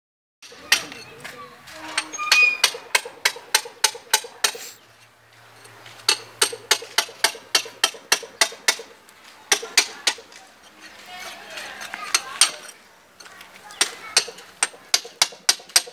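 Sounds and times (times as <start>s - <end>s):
hammer blows on concrete: 0.4s - 1.2s, 1.9s - 4.8s, 6.0s - 10.3s, 13.8s - 15.9s.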